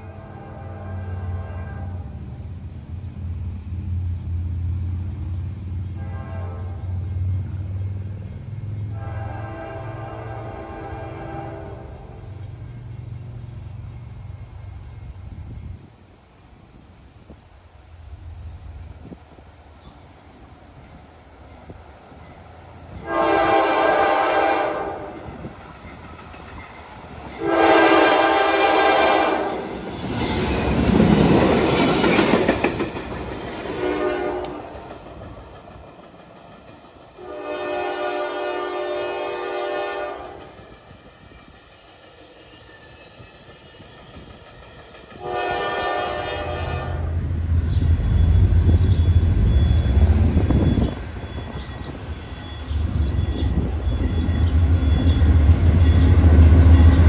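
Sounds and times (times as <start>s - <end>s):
train horn blasts: 0.0s - 2.3s, 5.8s - 7.4s, 8.8s - 12.4s, 22.9s - 25.5s, 27.3s - 29.8s, 33.7s - 34.8s, 37.2s - 40.7s, 45.2s - 47.4s
train wheels clattering on rails: 25.0s - 38.6s, 40.1s - 57.0s.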